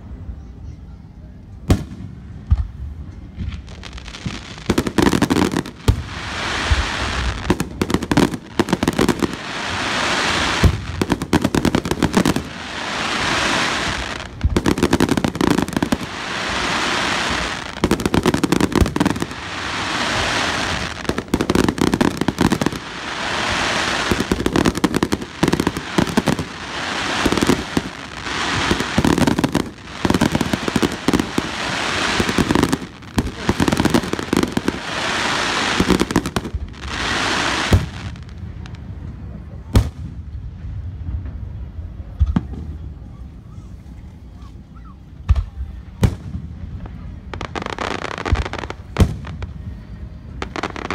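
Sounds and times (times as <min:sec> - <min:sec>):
fireworks bangs: 0:01.7 - 0:42.9, 0:45.2 - 0:50.9
fireworks hiss: 0:03.4 - 0:38.8, 0:46.0 - 0:50.9.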